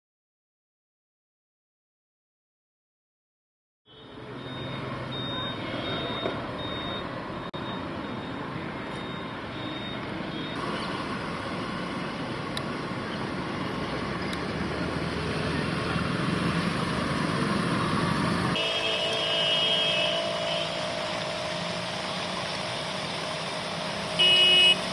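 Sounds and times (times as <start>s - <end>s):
car engines running: 4.1s - 24.9s
vehicle horn: 18.6s - 21.3s, 24.1s - 24.9s.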